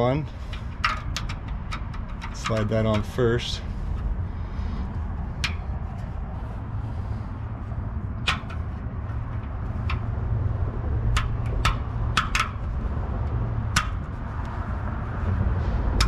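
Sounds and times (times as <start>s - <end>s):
low rumble: 0.0s - 16.0s
metallic clicks and taps: 0.5s - 3.2s, 5.4s - 5.7s, 8.2s - 14.6s.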